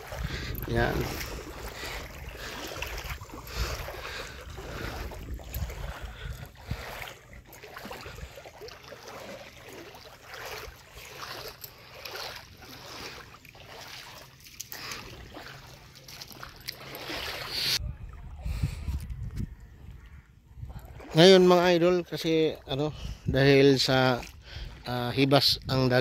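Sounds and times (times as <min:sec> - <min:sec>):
wind on microphone: 0:00.0 - 0:08.3, 0:17.5 - 0:21.2
water splashing and sloshing: 0:00.0 - 0:26.0.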